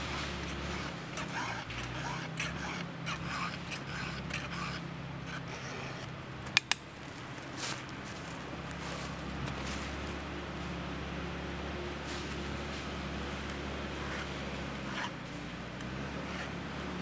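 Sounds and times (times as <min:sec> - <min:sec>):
file scraping chainsaw chain: 0:00.0 - 0:06.1, 0:13.5 - 0:15.4
sharp clicks: 0:06.5 - 0:06.9.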